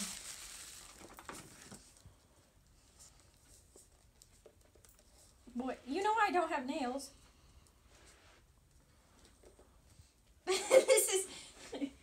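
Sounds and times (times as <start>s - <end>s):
tissue paper rustling: 0.0s - 2.0s.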